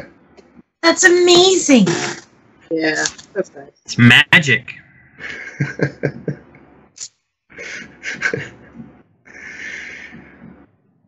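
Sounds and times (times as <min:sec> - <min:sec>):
indistinct voices: 0:00.8 - 0:06.6
noisy unpitched sound: 0:01.7 - 0:02.3.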